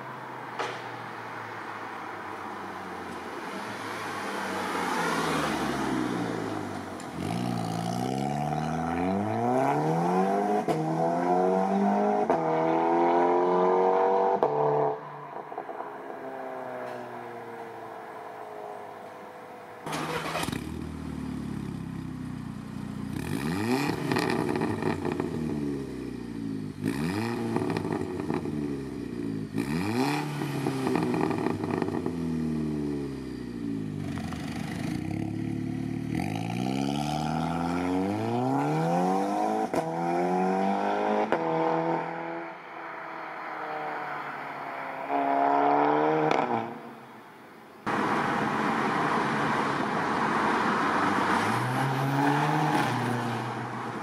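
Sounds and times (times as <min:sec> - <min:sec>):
car engine revving: 0:03.9 - 0:33.2, 0:33.8 - 0:47.0, 0:47.9 - 0:54.0
exhaust cracks: 0:19.8 - 0:21.3.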